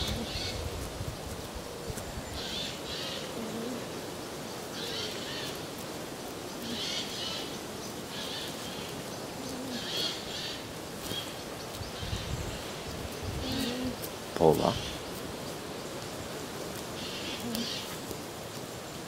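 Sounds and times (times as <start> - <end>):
alpacas humming: 0.0 - 0.7, 2.4 - 4.2, 6.6 - 10.7, 12.0 - 15.1, 17.0 - 18.1
steady background hiss: 0.0 - 19.0.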